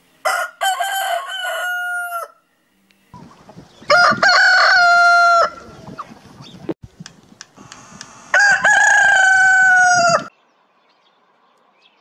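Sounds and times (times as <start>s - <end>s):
roosters crowing: 0.2s - 2.4s, 3.8s - 6.2s, 7.6s - 10.3s.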